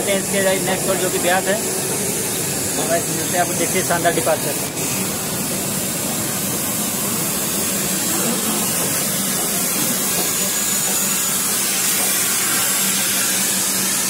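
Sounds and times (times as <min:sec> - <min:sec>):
train rushing noise: 0:05.0 - 0:12.7.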